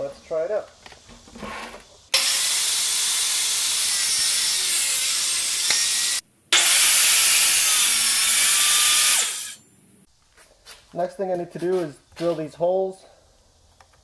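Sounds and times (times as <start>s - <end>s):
table saw cutting with high whine: 2.2s - 9.6s.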